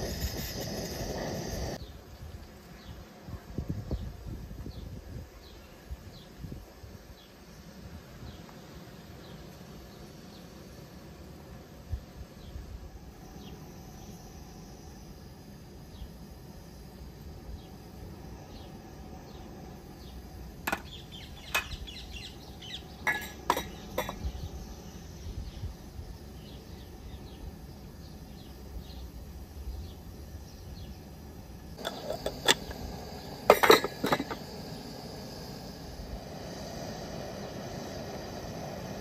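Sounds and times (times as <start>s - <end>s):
crickets chirping: 0.0s - 39.0s
glass and spoon clinking on pot: 31.8s - 32.8s, 33.5s - 34.4s.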